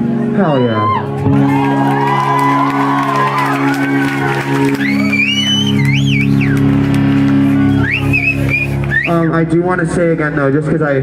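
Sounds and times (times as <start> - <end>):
electric guitar and bass drone: 0.0 - 11.0
crowd whooping and shouting: 0.4 - 9.2.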